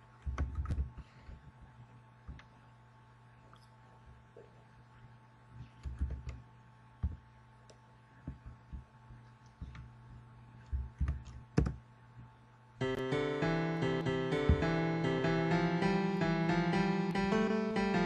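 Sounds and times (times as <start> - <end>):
laptop typing and clicking: 0.2 - 1.4, 5.8 - 6.4, 10.6 - 11.8
piano tune: 12.8 - 18.0.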